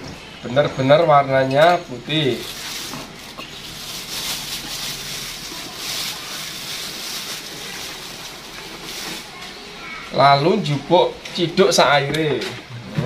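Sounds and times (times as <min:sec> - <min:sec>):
water trickling onto coconut: 0:02.3 - 0:09.7.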